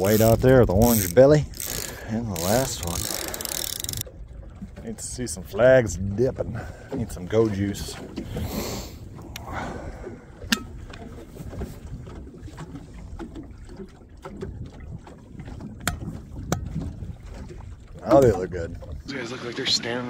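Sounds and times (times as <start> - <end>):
water and wind against hull: 0.0 - 20.0
sharp clicks: 0.9 - 4.0.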